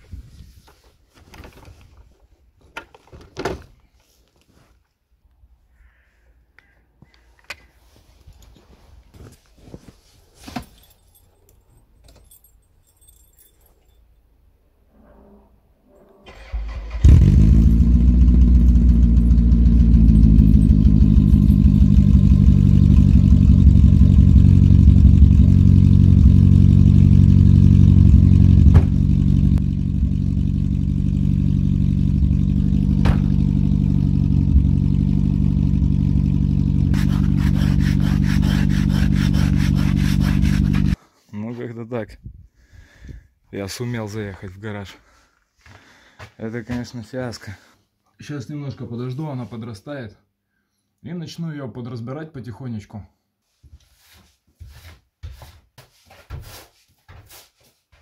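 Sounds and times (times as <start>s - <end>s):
car engine starting and idling: 16.3s - 41.0s.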